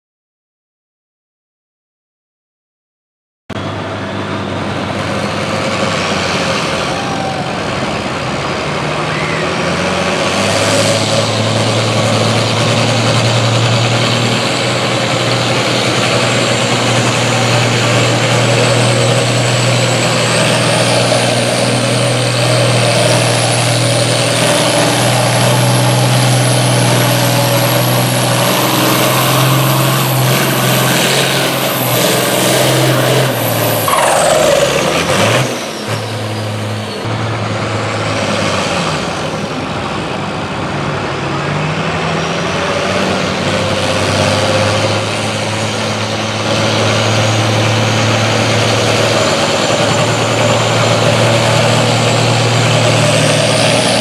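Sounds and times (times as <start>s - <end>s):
diesel tractor engine running: 3.5s - 54.0s
high whine rising in pitch: 15.9s - 37.1s.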